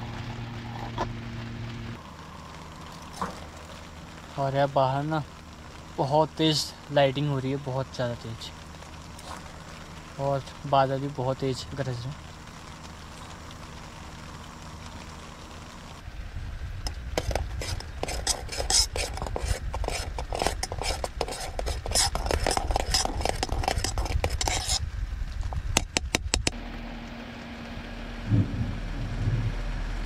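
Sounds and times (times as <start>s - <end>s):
steady low hum: 8.5s - 30.0s.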